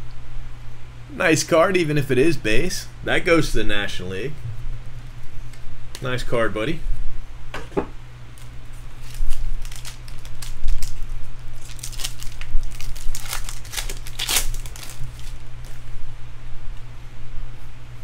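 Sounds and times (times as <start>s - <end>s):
steady low hum: 0.0s - 18.0s
foil wrapper crinkling and tearing: 8.4s - 15.8s.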